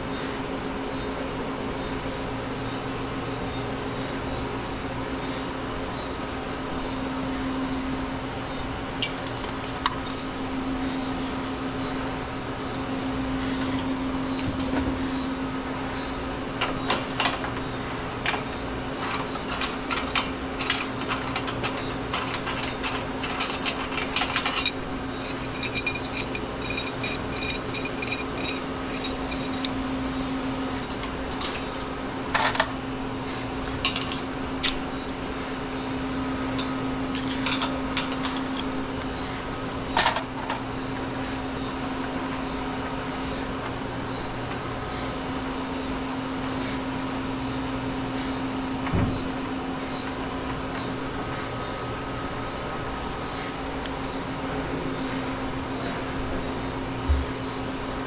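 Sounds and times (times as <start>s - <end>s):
low machinery hum: 0.0s - 58.0s
metal tools clinking: 18.3s - 29.8s, 30.8s - 32.7s, 33.8s - 35.2s, 36.5s - 38.7s, 39.9s - 40.6s.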